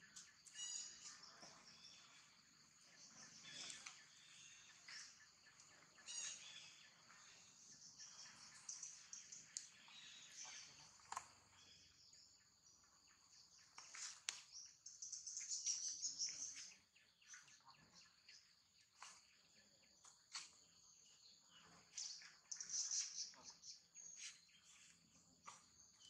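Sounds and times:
high-pitched insect chorus: 0.0 - 10.9.

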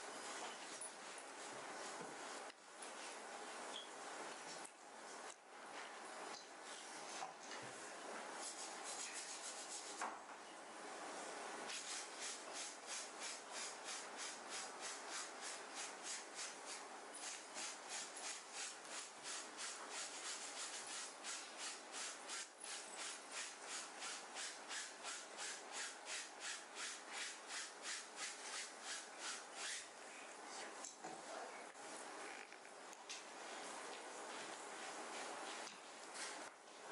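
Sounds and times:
brush scrubbing fabric: 8.4 - 10.0, 11.7 - 29.9.

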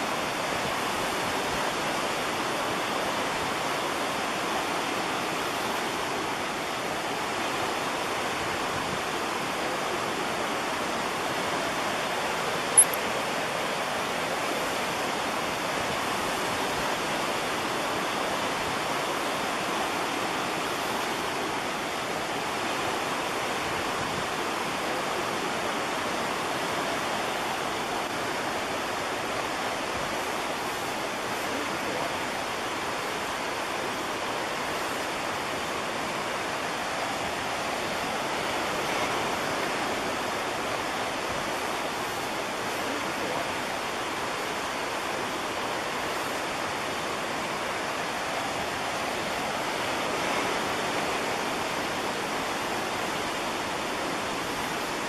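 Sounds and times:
creek rushing over rocks: 0.0 - 55.0.

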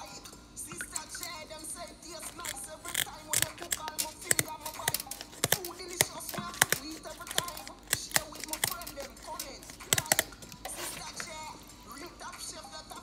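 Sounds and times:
background music: 0.0 - 13.0
scissors snipping fish fins: 2.1 - 11.4.

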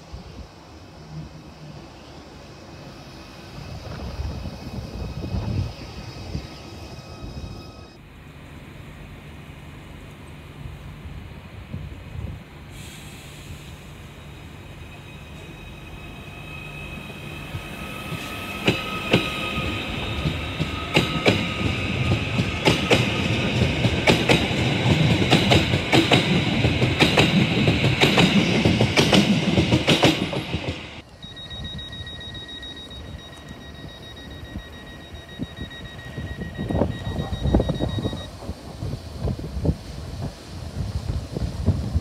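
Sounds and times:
electric train passing: 0.0 - 42.0
steady high tone: 4.4 - 8.0, 14.2 - 25.3, 31.0 - 38.3.

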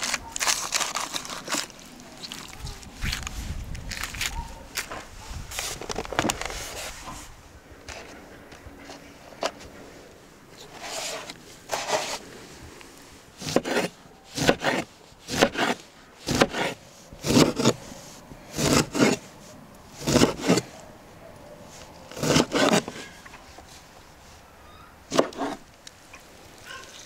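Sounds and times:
knife cutting on wooden board: 13.4 - 17.8, 18.6 - 19.2, 20.0 - 20.7, 22.1 - 23.0, 25.1 - 25.6
soft handling sounds: 16.8 - 24.6.

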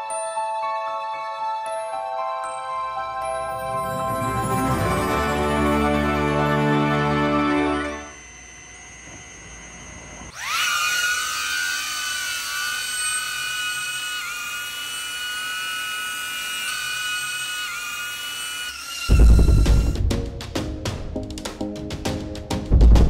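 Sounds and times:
drone propellers whining: 3.5 - 20.4.

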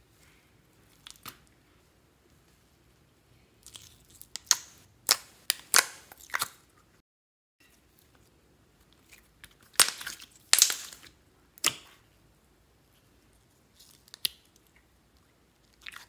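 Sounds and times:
slime wet pops and crackles: 3.6 - 6.7, 9.0 - 12.0, 13.8 - 16.0.

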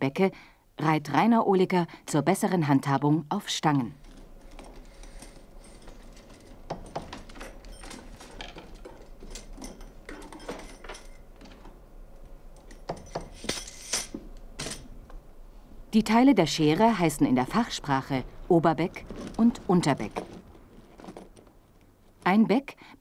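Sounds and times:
steel scissor halves clinking: 12.6 - 14.9.

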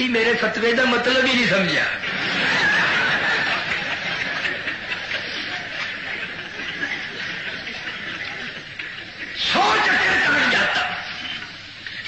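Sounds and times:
audience laughing: 1.9 - 11.0.

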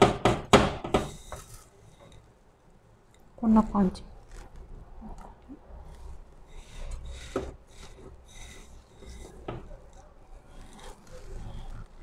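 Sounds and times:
breadcrumbs rustling: 4.1 - 12.0.

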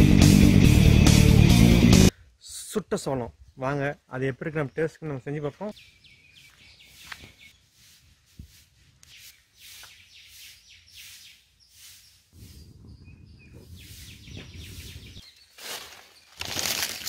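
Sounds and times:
small birds chirping: 4.2 - 17.0.

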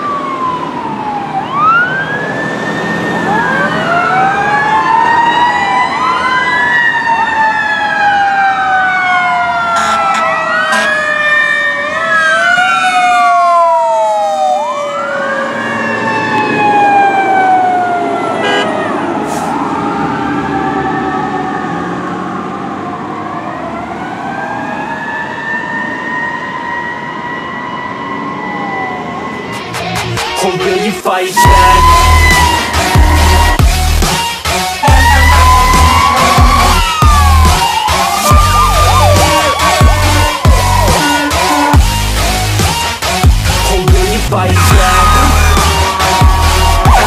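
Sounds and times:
long falling siren tones: 0.0 - 29.8, 31.4 - 47.0
electronic sirens wailing: 0.0 - 47.0
short sharp horn blasts: 18.4 - 18.7.

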